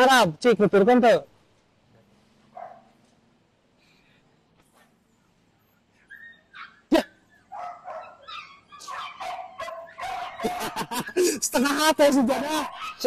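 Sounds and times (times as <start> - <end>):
dog barking and whining: 2.5 - 3.0, 6.0 - 13.0.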